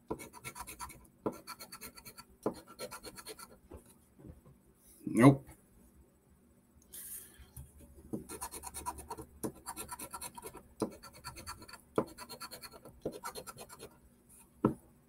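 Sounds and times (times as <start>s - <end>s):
lottery ticket being scratched: 8.3s - 13.9s.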